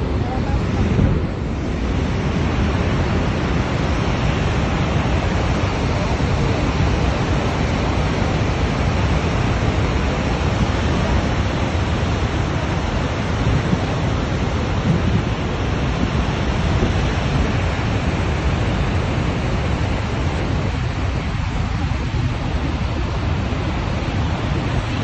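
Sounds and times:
waterfall roaring: 0:00.0 - 0:25.0.

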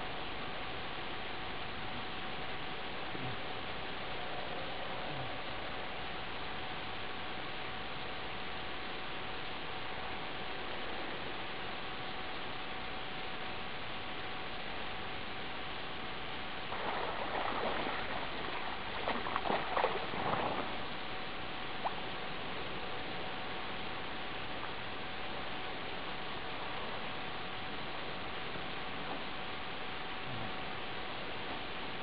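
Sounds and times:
faint hum: 0:00.0 - 0:32.0
steady hiss: 0:00.0 - 0:32.0
water splashing from swimming: 0:16.7 - 0:22.2.

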